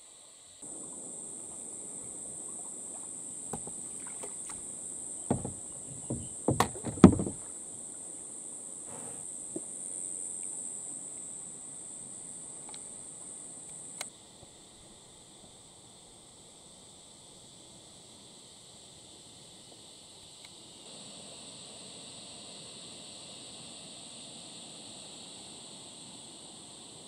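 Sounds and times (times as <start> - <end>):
high-pitched insect drone: 0.2 - 7.5, 15.1 - 27.0
paddle and hull knocking: 3.5 - 4.6, 5.3 - 7.5.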